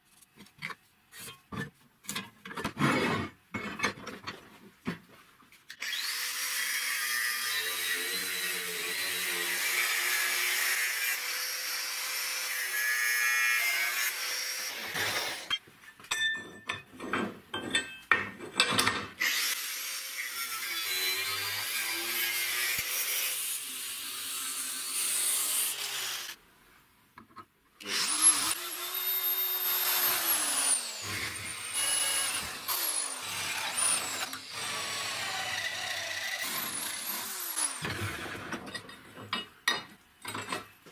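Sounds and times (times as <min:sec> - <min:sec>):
angle grinder cutting steel: 0:05.8 - 0:15.6, 0:19.2 - 0:26.4, 0:27.8 - 0:38.6
power drill boring steel: 0:05.8 - 0:15.6, 0:19.2 - 0:26.4, 0:27.8 - 0:38.6.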